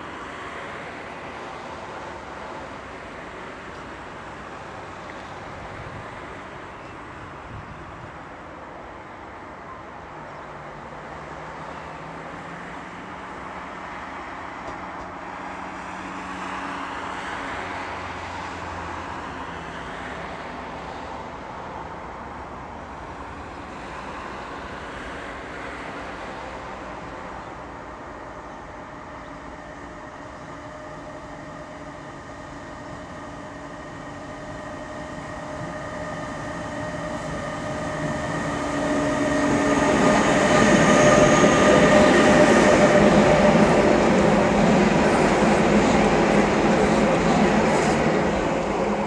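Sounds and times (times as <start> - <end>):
freight train rumble: 0.0 - 49.0
road traffic noise: 0.0 - 49.0.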